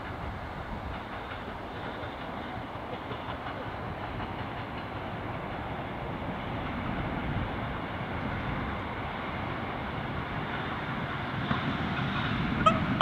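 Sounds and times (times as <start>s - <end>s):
electric train wheels on rails: 0.0s - 13.0s.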